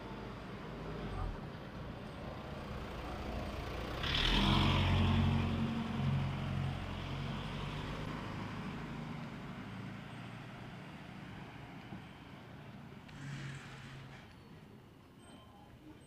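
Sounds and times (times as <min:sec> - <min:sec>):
vehicle passing by: 0:02.4 - 0:11.9.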